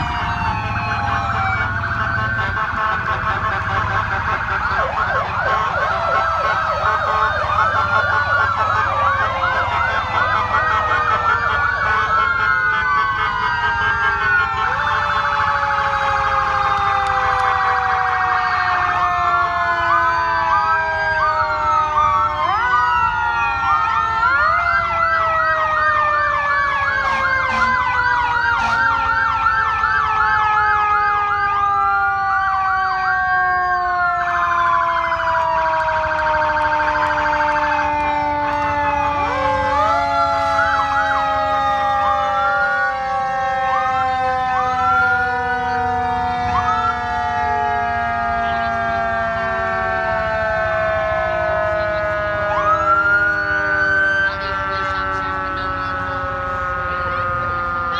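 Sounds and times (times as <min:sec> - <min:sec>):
sirens wailing and yelping: 0:00.0 - 0:57.9
siren tone falling in pitch: 0:04.3 - 0:57.9.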